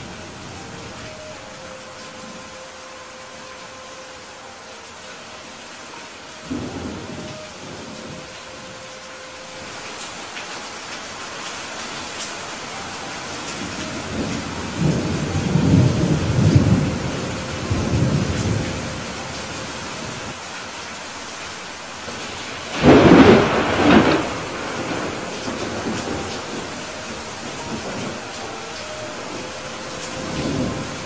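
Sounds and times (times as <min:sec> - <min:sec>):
rain hiss: 0:00.0 - 0:31.0
thunder rumbling: 0:06.5 - 0:08.8, 0:12.4 - 0:20.3, 0:22.1 - 0:31.0
sharp thunderclap: 0:22.7 - 0:26.6.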